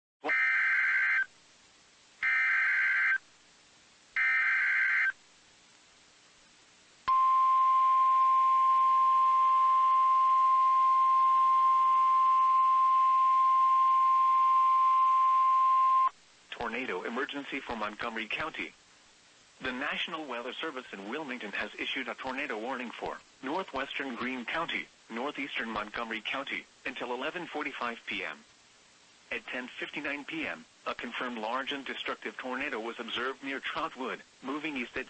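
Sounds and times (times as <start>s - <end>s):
steady warning alarm tone: 2.2s - 3.2s, 4.2s - 5.1s
warbling data tone bursts: 2.2s - 3.2s.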